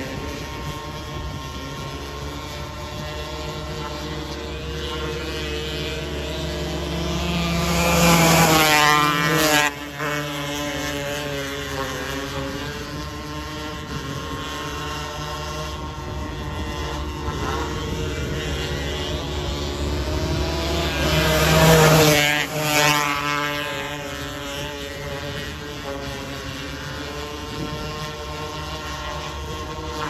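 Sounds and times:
racing car engines running: 0.0s - 30.0s.

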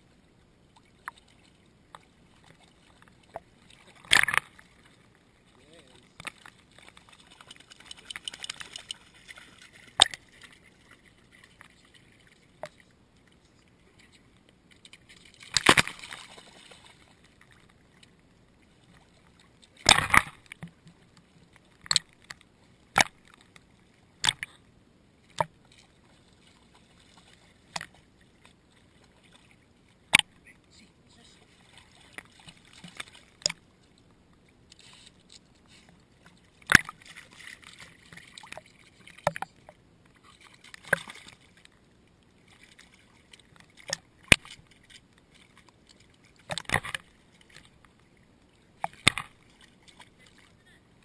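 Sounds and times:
seawater lapping and sloshing: 0.0s - 51.0s
water splashing against camera housing: 1.9s - 4.6s, 6.2s - 10.6s, 14.8s - 16.4s, 19.6s - 21.0s, 21.7s - 24.5s, 36.6s - 39.8s, 43.4s - 47.7s, 48.8s - 50.4s.

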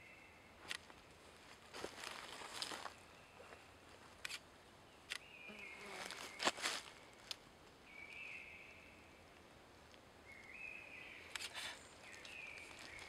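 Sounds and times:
dry leaves rustling and crackling: 1.5s - 3.0s, 6.0s - 7.3s, 12.0s - 13.0s.

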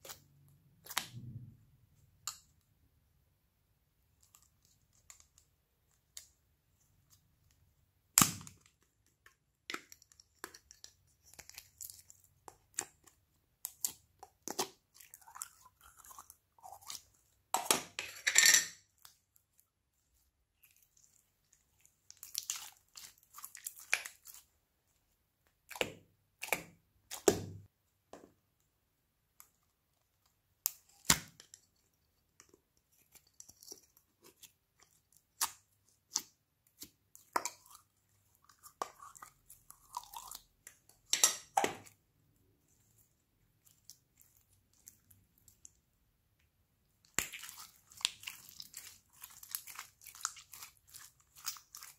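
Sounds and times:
sticky slime crackling: 20.5s - 24.6s, 47.0s - 51.9s.

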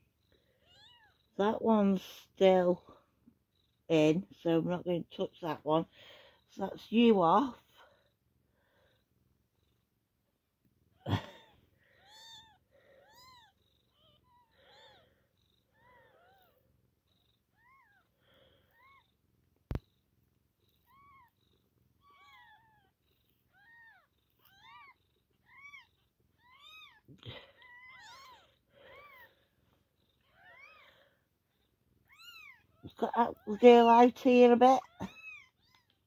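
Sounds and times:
kittens mewing: 20.7s - 29.5s, 30.2s - 31.1s.

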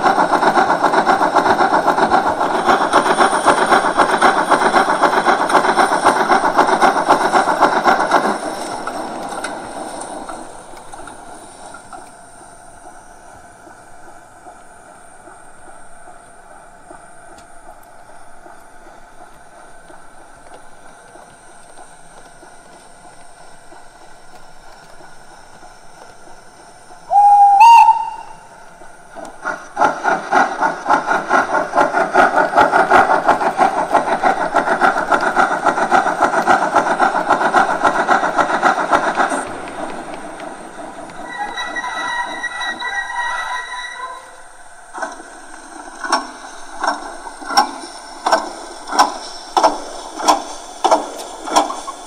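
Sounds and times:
steam exhaust chuffing: 0.0s - 52.0s
steam whistle: 27.1s - 28.6s, 41.2s - 44.6s.

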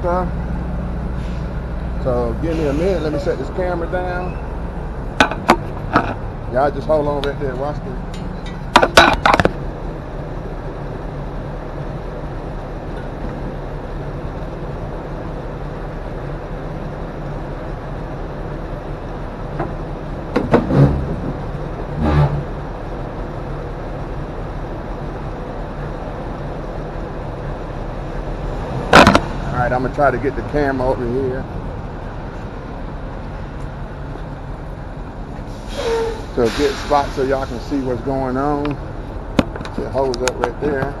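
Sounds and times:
diesel truck engine idling: 0.0s - 20.4s, 21.0s - 41.0s
loud knocks: 20.3s - 21.4s, 28.9s - 29.3s.

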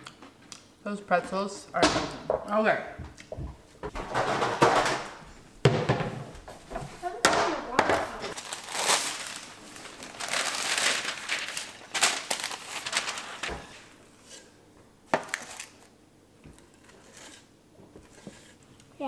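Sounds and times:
parchment paper crinkling: 8.0s - 14.5s.

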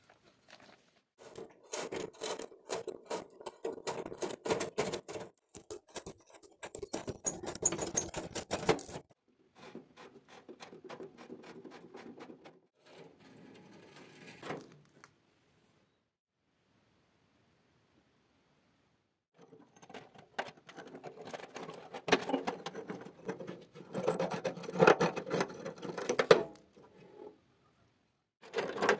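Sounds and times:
screwdriver clicking and scraping: 1.2s - 9.1s, 19.4s - 26.4s.

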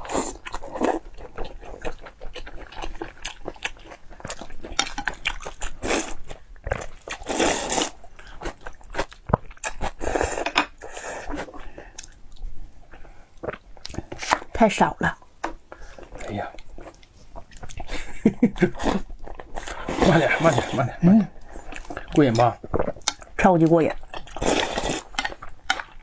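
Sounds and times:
chewing and crunching food: 0.0s - 14.8s, 15.5s - 26.0s
slurping from a bowl: 5.8s - 8.5s, 9.6s - 11.7s, 17.5s - 23.2s, 24.1s - 25.5s.

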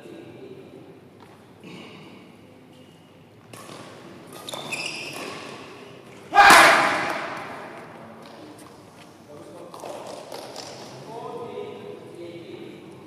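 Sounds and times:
loud echoing shout: 6.3s - 8.0s.

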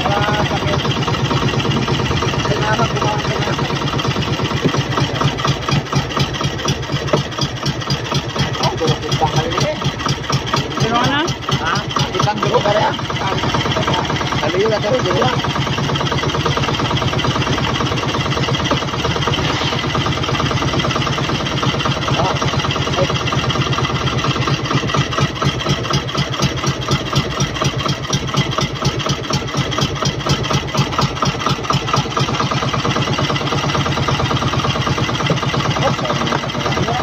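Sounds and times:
boat engine pulsing: 0.0s - 37.0s.

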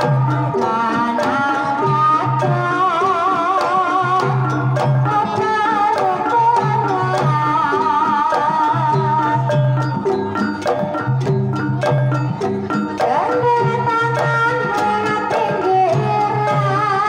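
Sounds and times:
metallophones: 0.0s - 17.0s
woman singing ornamented melody: 13.0s - 17.0s.

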